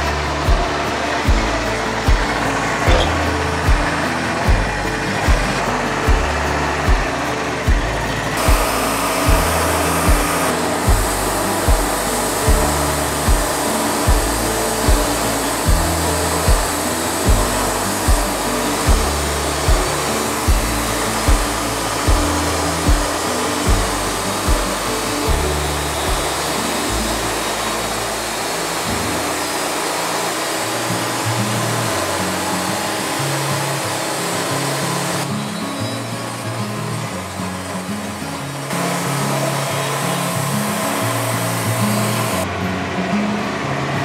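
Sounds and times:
background music with beat: 0.0s - 30.5s
band sawmill running: 0.0s - 44.0s.

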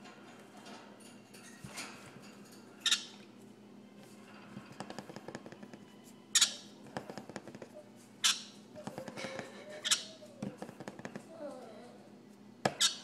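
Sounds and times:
parrot squawking: 6.4s - 6.7s, 7.8s - 10.4s, 12.7s - 13.0s.

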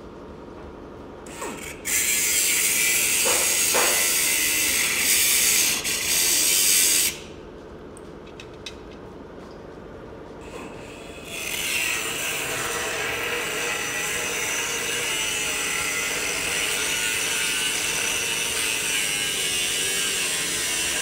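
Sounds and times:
pneumatic cutoff wheel cutting steel: 1.3s - 7.3s, 10.4s - 21.0s.

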